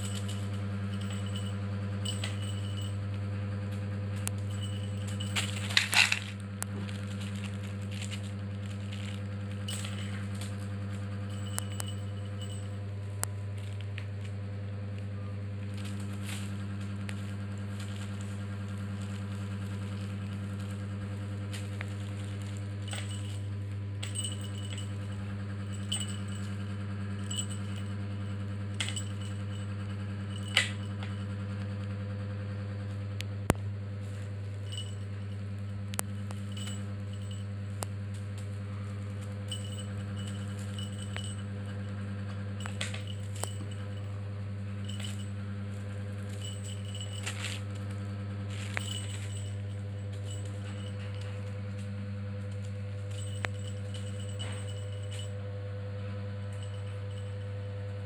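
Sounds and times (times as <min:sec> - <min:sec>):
jingle bell tinkling: 0:00.0 - 0:03.1, 0:04.2 - 0:06.4, 0:07.1 - 0:12.9, 0:15.2 - 0:31.3, 0:34.1 - 0:37.5, 0:39.5 - 0:45.4, 0:46.2 - 0:47.7, 0:48.5 - 0:51.5, 0:53.0 - 0:55.4, 0:56.4 - 0:57.6
steady low hum: 0:00.0 - 0:58.0.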